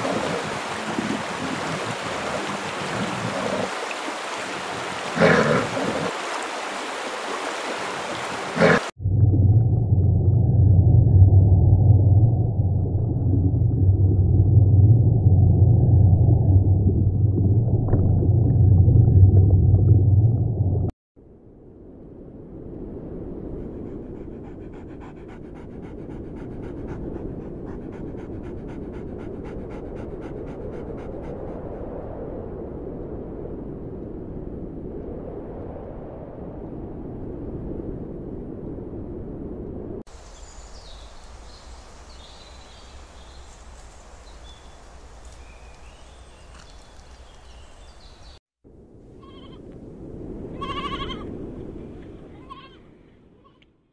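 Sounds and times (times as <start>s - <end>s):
water splashing: 0.0s - 20.9s
bear growls: 5.2s - 6.1s, 8.6s - 8.9s
low underwater rumble: 9.0s - 21.0s
dog panting: 23.9s - 31.5s.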